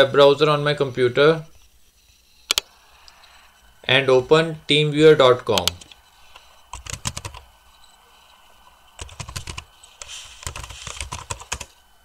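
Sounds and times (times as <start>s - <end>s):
keyboard typing: 2.5s - 2.7s, 5.6s - 7.5s, 9.0s - 11.8s.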